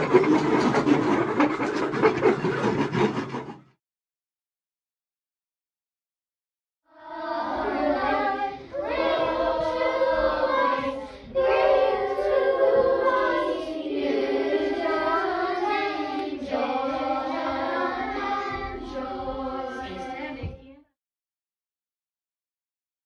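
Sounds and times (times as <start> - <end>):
children's choir singing: 0.0 - 2.6, 6.9 - 20.6.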